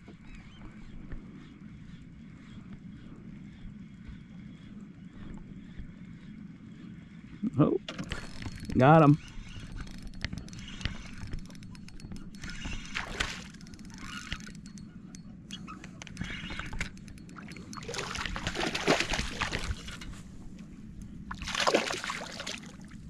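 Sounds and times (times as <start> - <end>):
fish thrashing water splashing: 17.8 - 19.9, 21.3 - 22.8.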